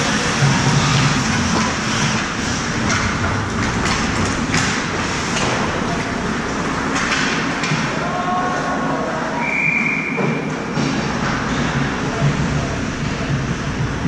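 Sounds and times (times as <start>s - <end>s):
rink background noise: 0.0s - 14.0s
hockey sticks knocking: 0.3s - 8.0s.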